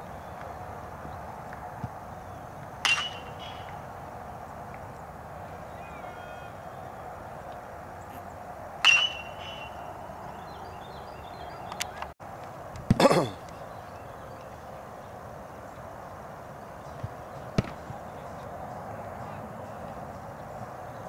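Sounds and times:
metal bat pinging ball: 2.8s - 3.7s, 8.8s - 9.7s.

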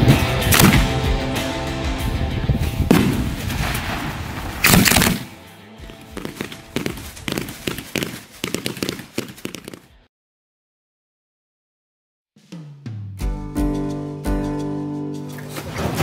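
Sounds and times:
background music: 0.0s - 3.6s, 4.6s - 7.9s, 12.8s - 16.0s
fireworks bangs: 2.9s - 5.2s
rapid sharp firework reports: 2.9s - 5.2s.

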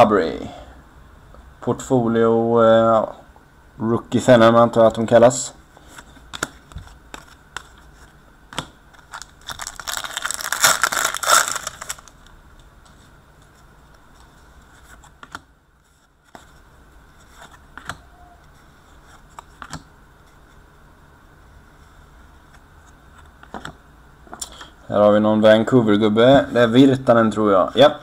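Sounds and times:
foil wrapper crinkling and tearing: 9.0s - 12.3s.

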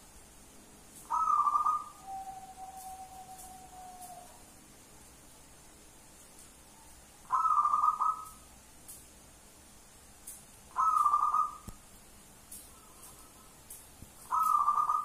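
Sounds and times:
dove cooing: 1.1s - 4.4s, 6.8s - 8.4s, 10.7s - 11.7s, 14.2s - 15.0s.

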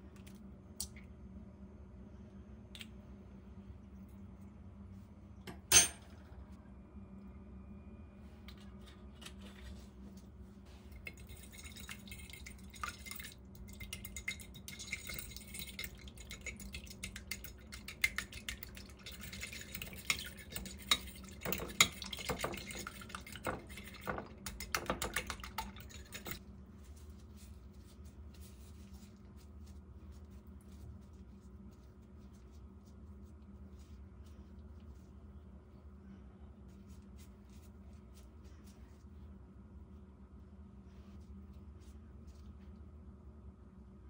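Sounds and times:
fork beating eggs in dish: 10.9s - 26.4s.

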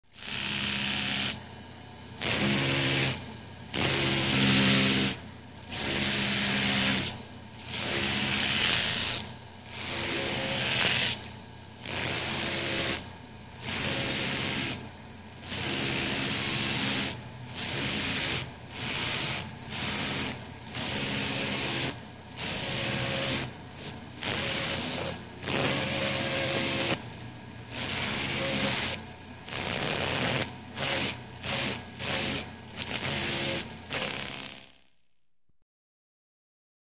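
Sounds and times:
dentist's drill whining: 0.1s - 1.4s, 2.2s - 13.0s, 13.6s - 14.8s, 15.4s - 34.8s.

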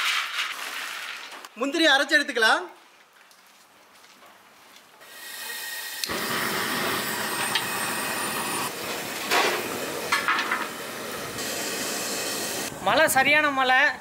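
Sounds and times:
gas hissing: 5.1s - 13.4s
gas burner flame rushing: 6.0s - 13.0s.

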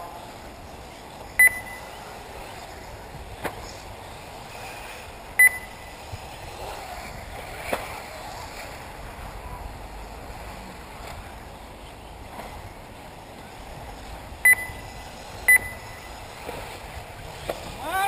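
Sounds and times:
outdoor background hiss: 0.0s - 18.0s
high electronic beep: 1.4s - 2.0s, 5.4s - 5.9s, 14.4s - 16.2s.

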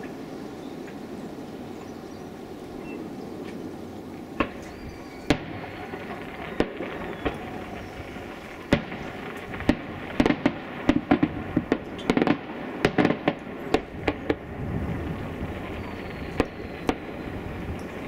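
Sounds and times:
fireworks exploding: 4.1s - 18.0s.

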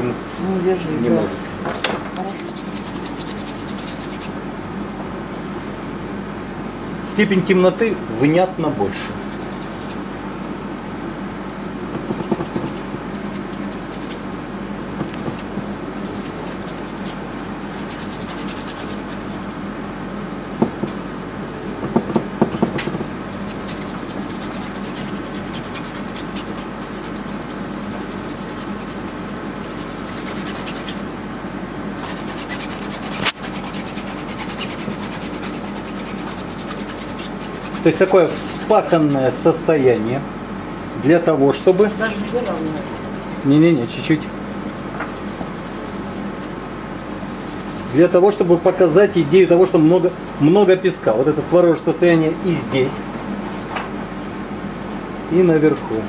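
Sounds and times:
room hum: 0.0s - 56.0s
paint scraped on canvas: 2.4s - 4.4s, 9.0s - 10.0s, 12.0s - 14.3s, 15.2s - 19.5s, 23.3s - 31.1s, 32.0s - 39.3s, 41.5s - 48.5s, 52.5s - 55.3s.

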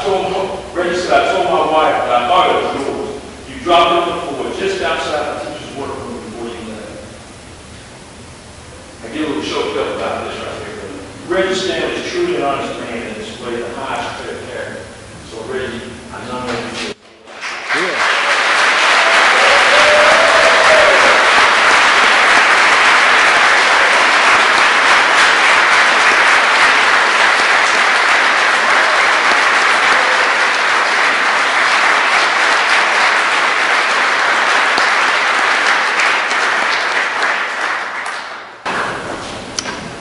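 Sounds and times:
audience applauding: 17.2s - 39.0s
hands clapping close by: 17.3s - 38.9s.

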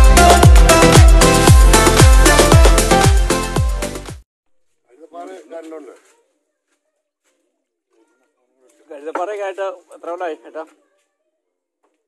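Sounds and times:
electronic dance music: 0.0s - 4.2s.

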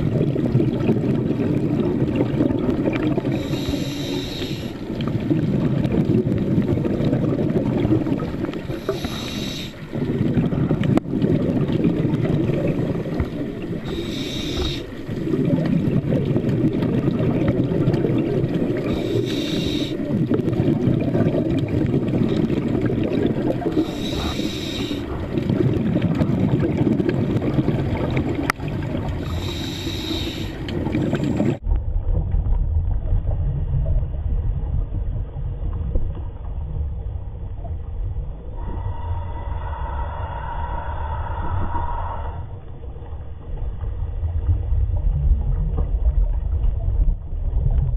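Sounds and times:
exhaled bubbles rushing: 0.0s - 47.9s
diver breathing through regulator: 3.3s - 4.9s, 8.7s - 10.0s, 13.8s - 15.1s, 18.8s - 20.1s, 23.7s - 25.3s, 29.2s - 31.2s, 38.5s - 42.7s
low muffled rumble: 30.7s - 47.9s.

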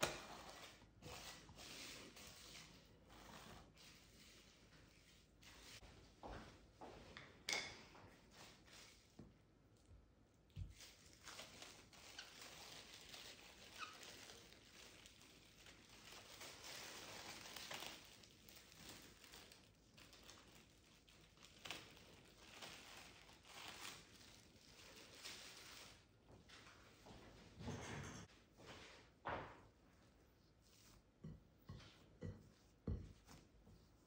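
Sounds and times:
cling film crinkling: 10.8s - 26.0s.

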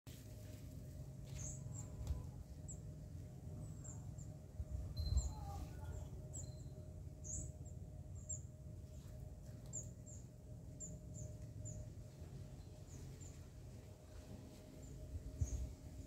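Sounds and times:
low background rumble: 0.1s - 16.0s
small bird chirping: 3.6s - 8.5s.

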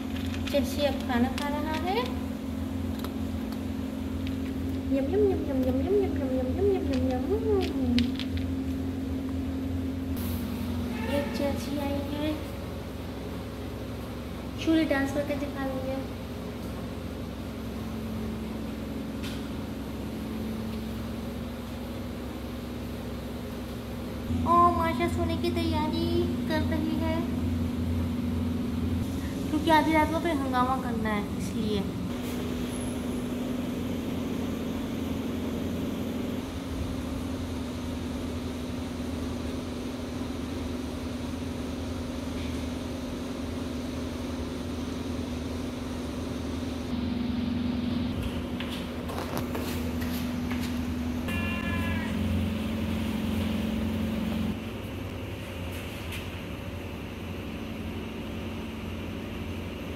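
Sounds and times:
low mechanical hum: 0.0s - 59.9s
motor humming: 44.0s - 55.3s.

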